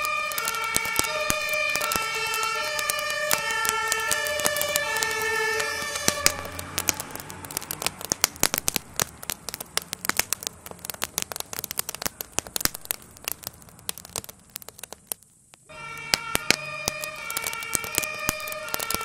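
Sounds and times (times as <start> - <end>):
siren: 0.0 - 7.6, 15.7 - 19.0
fire crackling and popping: 0.0 - 19.0.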